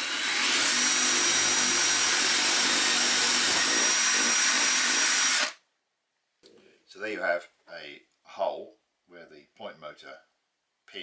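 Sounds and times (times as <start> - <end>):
cordless drill boring into wood: 0.0 - 5.6.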